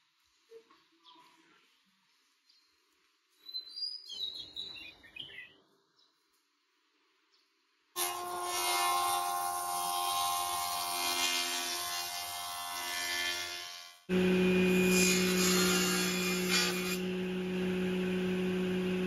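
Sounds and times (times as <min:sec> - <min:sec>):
table saw running: 0:08.0 - 0:19.0
thickness planer planing wood: 0:14.1 - 0:19.0.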